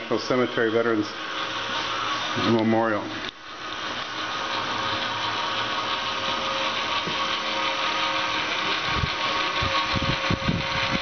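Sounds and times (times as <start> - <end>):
rotisserie motor whirring: 0.0 - 11.0.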